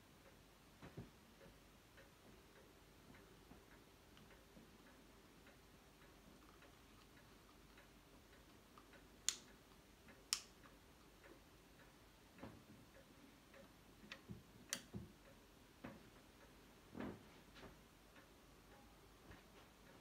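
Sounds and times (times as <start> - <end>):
faint ticks: 0.2 - 16.6
sharp clicks: 6.4 - 11.4.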